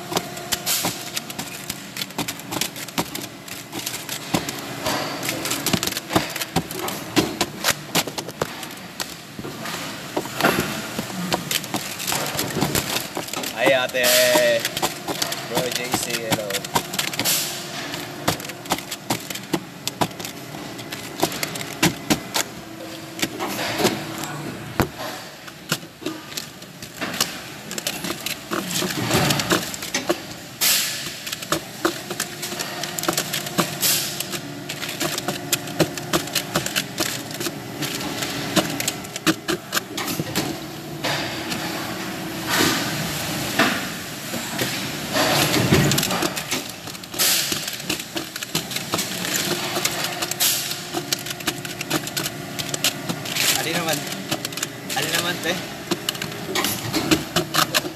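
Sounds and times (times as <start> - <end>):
plastic parts clicking and clacking: 0.0 - 22.5, 23.2 - 41.3, 44.6 - 57.9.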